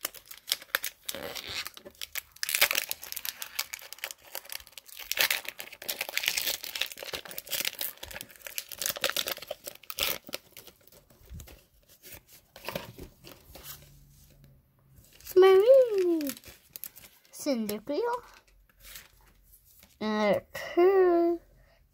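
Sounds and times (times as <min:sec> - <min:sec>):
foil wrapper crinkling and tearing: 0:00.0 - 0:12.8, 0:15.1 - 0:17.8.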